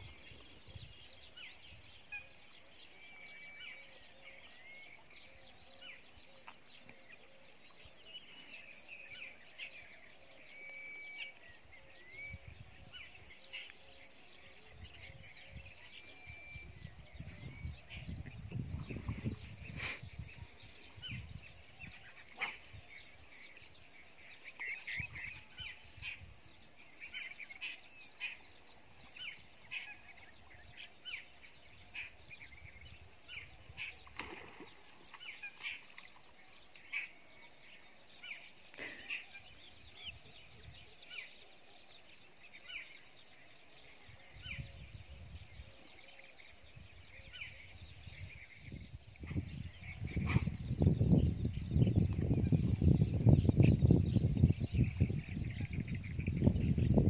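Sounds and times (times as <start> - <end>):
birds chirping: 0.0 - 57.0
low rumbles on microphone: 14.8 - 21.7, 46.6 - 57.0.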